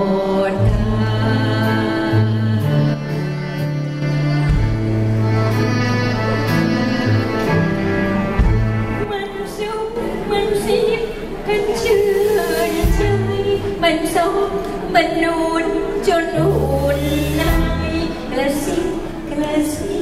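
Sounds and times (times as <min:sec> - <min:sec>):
woman singing into microphone: 0:00.0 - 0:03.5, 0:09.0 - 0:20.0
live band playing: 0:00.0 - 0:20.0.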